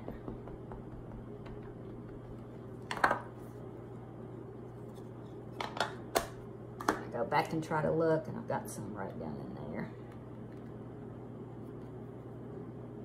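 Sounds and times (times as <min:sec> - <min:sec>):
ink pad tapping plastic: 0:00.0 - 0:02.3
low hum: 0:00.0 - 0:06.8.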